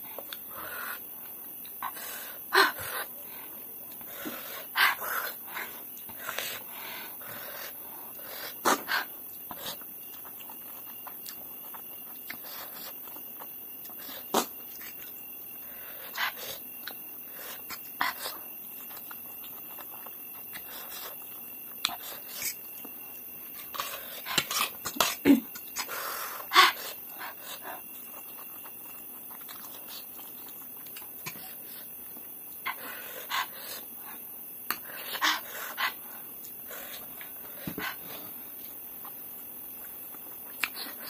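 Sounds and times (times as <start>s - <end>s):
chewing: 7.2s - 38.0s.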